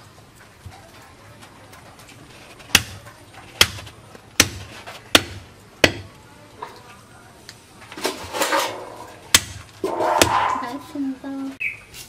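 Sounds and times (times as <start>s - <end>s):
knife chopping on wooden block: 3.6s - 6.1s.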